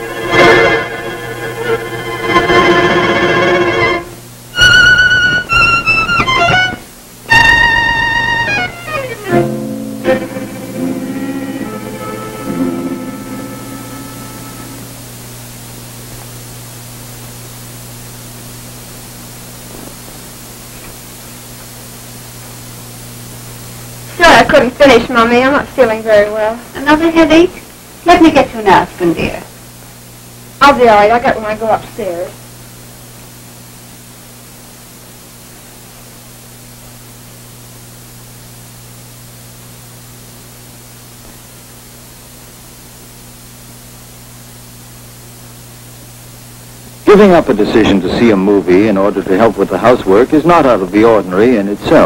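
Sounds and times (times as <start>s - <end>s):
low hum: 0.0s - 24.2s
film soundtrack hiss: 0.0s - 52.0s
low even hum: 0.0s - 52.0s.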